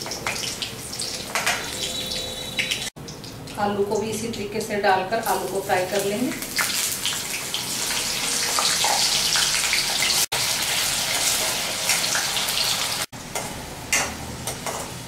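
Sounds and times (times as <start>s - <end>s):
potatoes sizzling in fat: 5.2s - 13.2s.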